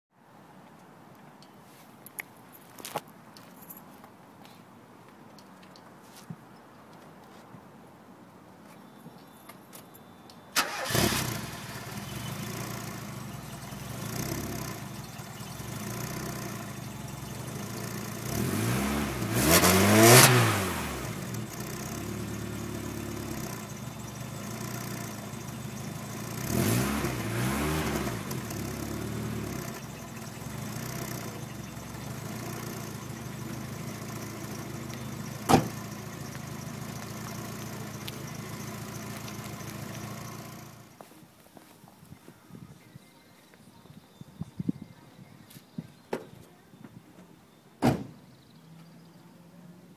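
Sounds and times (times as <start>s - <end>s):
car engine starting and revving: 10.6s - 40.9s.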